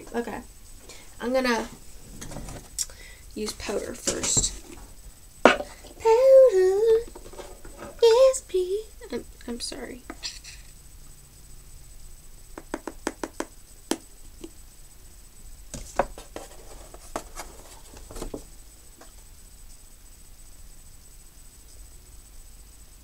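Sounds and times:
soft rustling: 15.8s - 19.3s.

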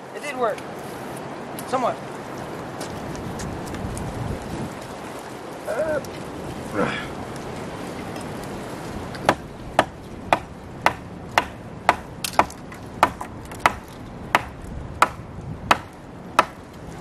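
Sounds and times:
hand tool striking wood: 9.2s - 16.6s.

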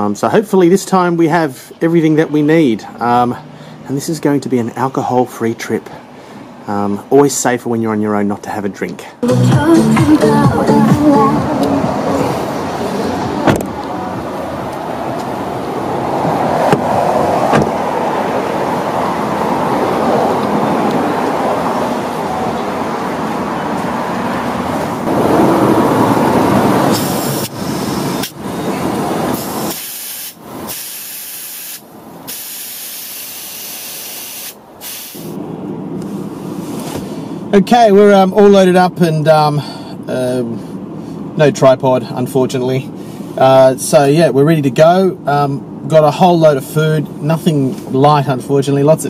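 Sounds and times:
steady rushing noise: 9.6s - 29.8s
tyre inflator hissing air: 26.9s - 28.4s, 29.3s - 35.4s.

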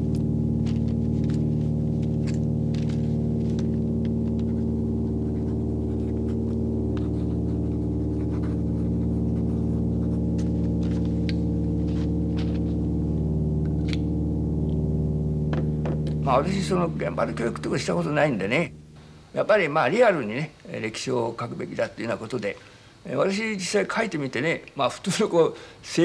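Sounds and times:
propeller aircraft engine drone: 0.0s - 18.0s
clicks and crackle: 0.1s - 4.6s.

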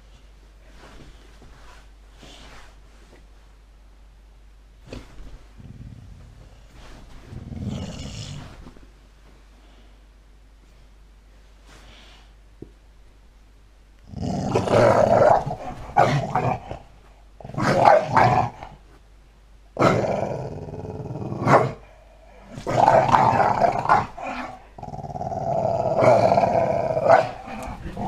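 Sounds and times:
dog growling: 7.2s - 8.6s, 14.1s - 18.7s, 22.4s - 28.0s.

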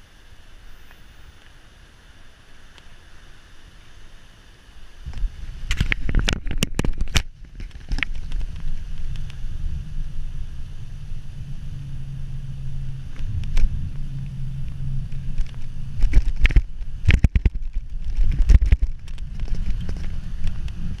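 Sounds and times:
wind on microphone: 4.9s - 21.0s
bike tyres rumbling on pavement: 5.0s - 21.0s
bike knocking and rattling: 5.2s - 21.0s.

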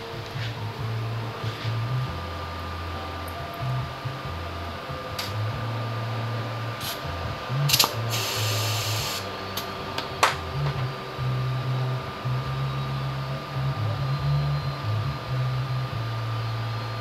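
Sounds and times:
steady low hum: 0.0s - 17.0s
air hissing from tyre valve: 7.7s - 9.3s.

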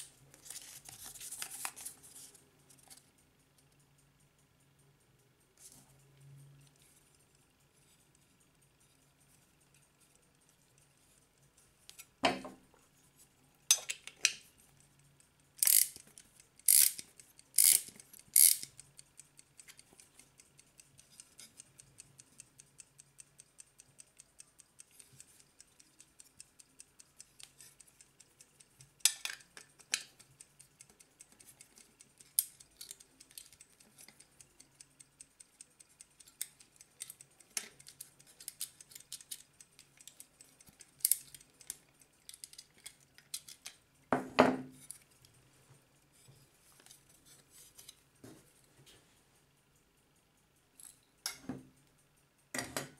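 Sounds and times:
metallic handling clicks: 13.7s - 43.9s
clock ticking rapidly: 14.6s - 44.1s.

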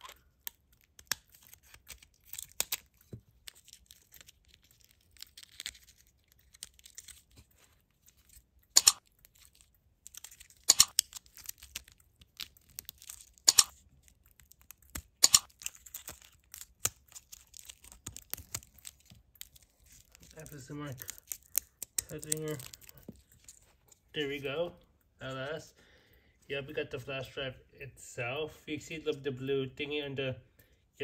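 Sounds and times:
plastic crinkling and crackling: 0.0s - 24.1s
scissors snipping: 8.7s - 9.4s, 10.0s - 19.6s.

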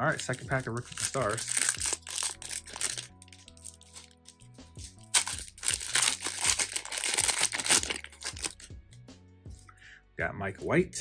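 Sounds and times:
foil pack crinkling: 0.0s - 8.7s.

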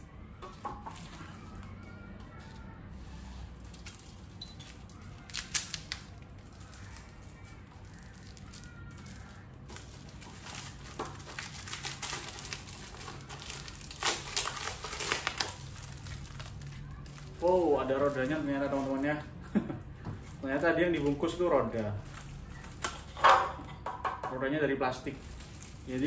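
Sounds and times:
plastic crinkling: 0.5s - 23.8s, 24.8s - 26.0s
tape and plastic wrap peeling: 0.5s - 23.8s, 25.0s - 26.0s
sharp tape rips: 3.7s - 17.4s.

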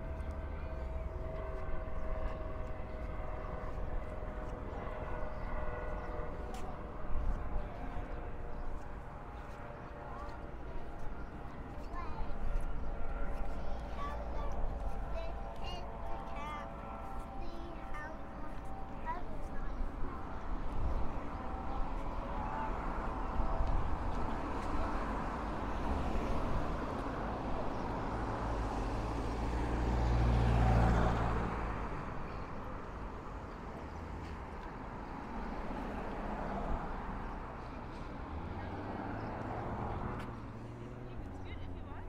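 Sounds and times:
road traffic: 0.0s - 42.0s
vehicle passing close by: 21.4s - 42.0s.

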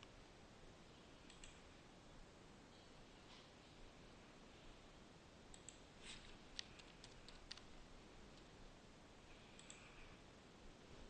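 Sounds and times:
keyboard and mouse clicks: 1.3s - 1.6s, 5.5s - 8.5s, 9.5s - 9.9s.

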